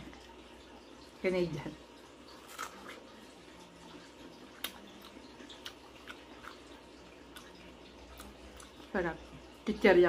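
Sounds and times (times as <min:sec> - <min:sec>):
person chewing: 0:02.3 - 0:03.2, 0:03.9 - 0:08.9.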